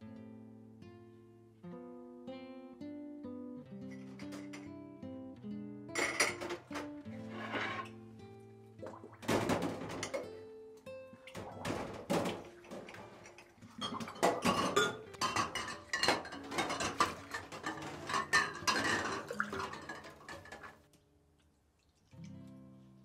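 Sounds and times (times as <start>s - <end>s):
glass cups clinking in sink: 4.1s - 4.7s, 6.0s - 7.9s, 9.2s - 10.4s, 11.2s - 20.8s.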